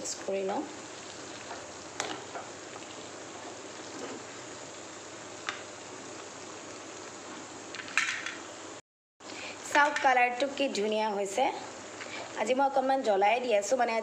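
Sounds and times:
curry sizzling in a pan: 0:00.0 - 0:14.0
spatula scraping a pan: 0:03.3 - 0:04.4.

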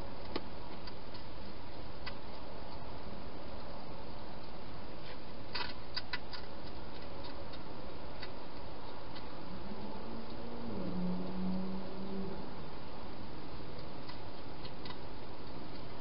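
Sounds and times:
low steady buzz: 0:00.0 - 0:16.0
steady background hiss: 0:00.0 - 0:16.0
sharp clicks: 0:05.5 - 0:09.4.

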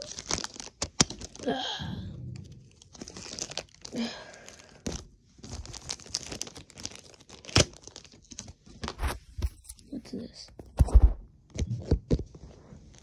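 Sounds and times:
packaging tearing and crinkling: 0:00.0 - 0:01.6, 0:02.3 - 0:09.8.

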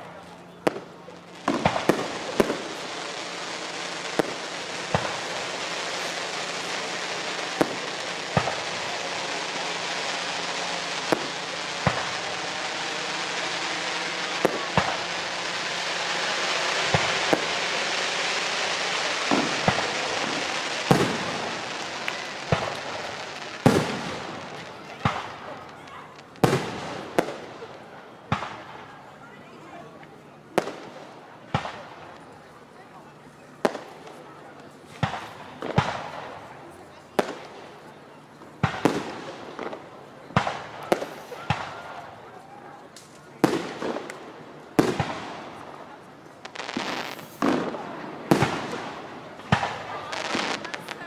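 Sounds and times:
fireworks crackling hiss: 0:00.0 - 0:51.0
firework shells bursting: 0:00.7 - 0:25.8.

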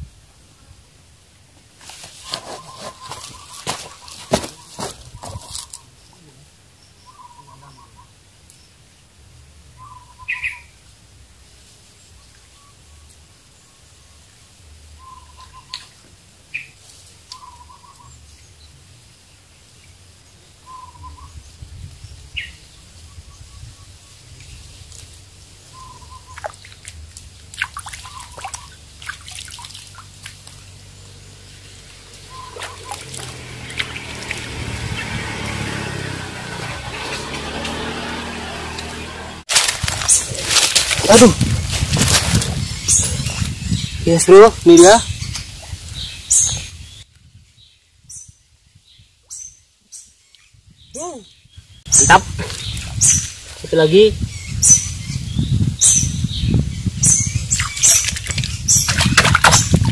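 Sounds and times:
small water splashes: 0:01.8 - 0:05.8, 0:26.1 - 0:30.8, 0:32.2 - 0:43.5, 0:57.5 - 0:59.9
birds calling: 0:01.9 - 0:08.8, 0:09.8 - 0:10.8, 0:15.0 - 0:48.3, 0:48.9 - 0:59.9
higher bird chirps: 0:02.2 - 0:08.2, 0:09.8 - 0:10.8, 0:15.0 - 0:18.6, 0:20.6 - 0:21.4, 0:25.6 - 0:26.9, 0:30.8 - 0:39.4.

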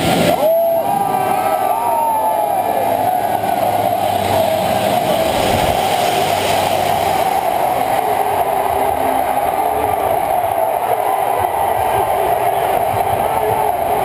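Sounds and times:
stadium crowd cheering: 0:00.0 - 0:14.0.

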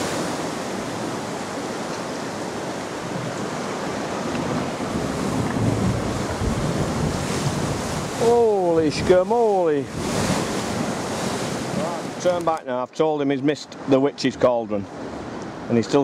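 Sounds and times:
wind buffeting microphone: 0:00.0 - 0:12.6
surf breaking against cliff: 0:00.0 - 0:12.8.

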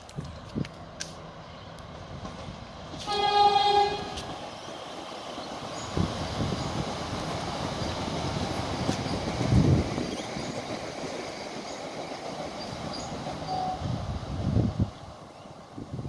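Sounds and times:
train running rumble: 0:00.0 - 0:16.0
train horn blast: 0:03.0 - 0:04.4.

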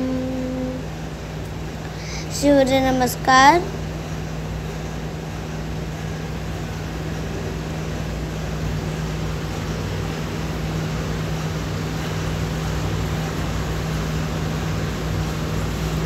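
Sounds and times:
low machine hum: 0:00.0 - 0:16.0
even hiss: 0:01.8 - 0:03.8.

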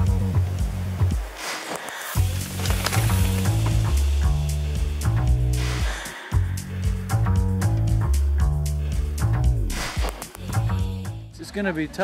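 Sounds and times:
steady crackling hiss: 0:00.0 - 0:07.1
held low bass notes: 0:02.2 - 0:05.8, 0:06.4 - 0:09.7.

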